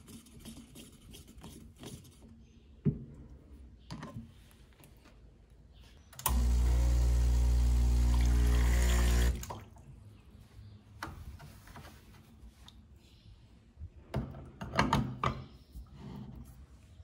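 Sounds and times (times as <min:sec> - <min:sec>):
espresso machine pump humming: 0:06.2 - 0:09.4.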